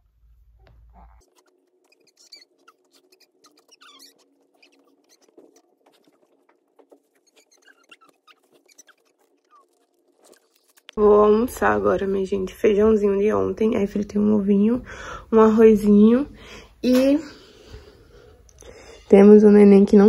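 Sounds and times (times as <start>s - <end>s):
baby squeaking: 0.9s - 10.6s.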